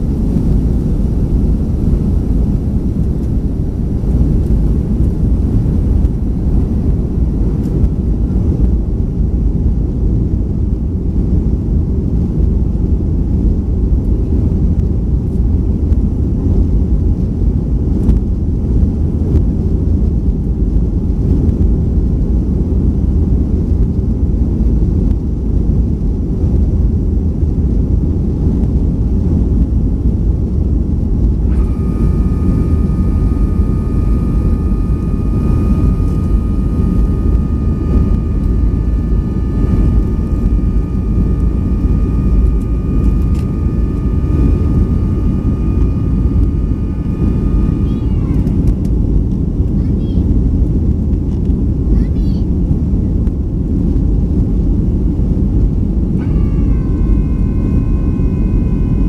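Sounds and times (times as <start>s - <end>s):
high whining tones: 0.0s - 8.6s, 30.9s - 49.8s, 56.0s - 59.0s
jet engines roaring: 0.0s - 9.7s, 30.7s - 49.8s, 55.5s - 59.0s.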